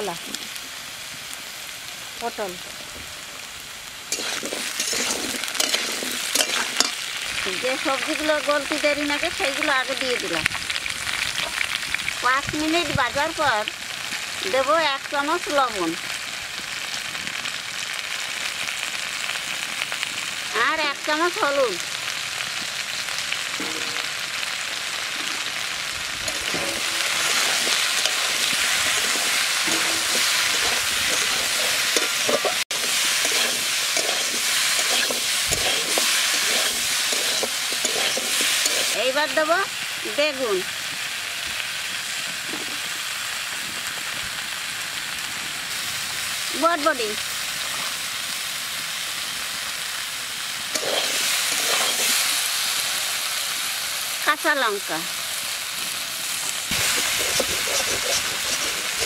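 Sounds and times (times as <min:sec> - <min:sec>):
vegetables sizzling: 0:00.0 - 0:59.0
metal spatula scraping pan: 0:04.1 - 0:07.0, 0:23.6 - 0:24.2, 0:26.3 - 0:39.0, 0:50.8 - 0:52.3, 0:56.7 - 0:59.0.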